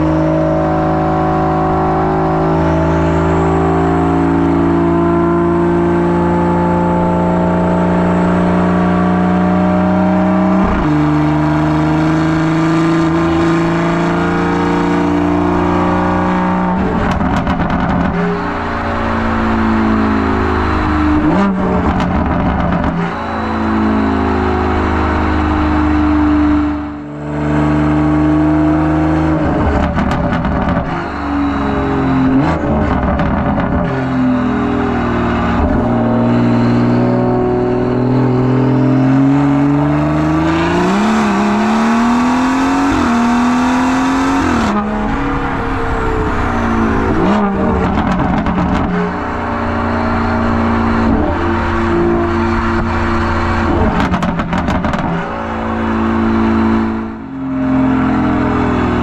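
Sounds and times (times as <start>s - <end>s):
car engine accelerating: 0.0s - 59.0s
exhaust crackles and pops: 16.9s - 18.2s, 47.8s - 49.0s, 53.7s - 55.3s.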